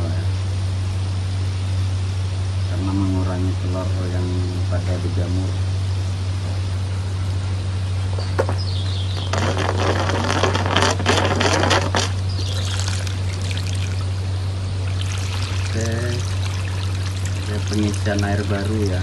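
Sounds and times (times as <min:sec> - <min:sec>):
steady low hum: 0:00.0 - 0:19.0
water pouring into a pond: 0:11.6 - 0:19.0.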